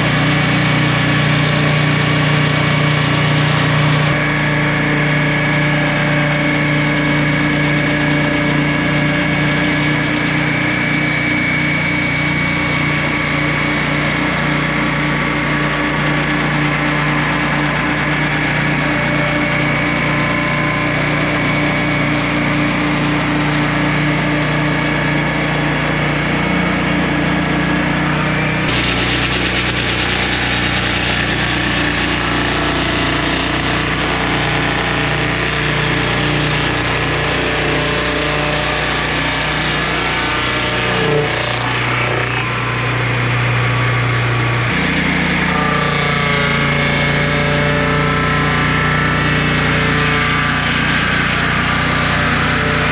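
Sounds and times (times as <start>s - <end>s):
pitched whine: 0.0s - 52.9s
sawmill engine running: 0.0s - 52.9s.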